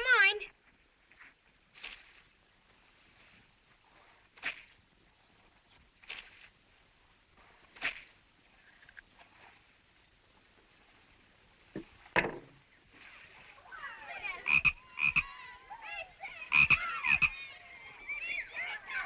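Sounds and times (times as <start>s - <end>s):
knock: 11.8s - 12.5s
frog croaking: 14.4s - 15.3s, 16.5s - 17.5s.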